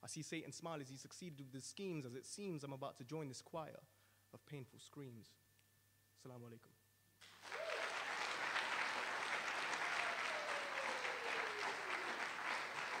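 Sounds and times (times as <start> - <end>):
audience applauding: 7.2 - 13.0
long falling tone: 7.5 - 13.0.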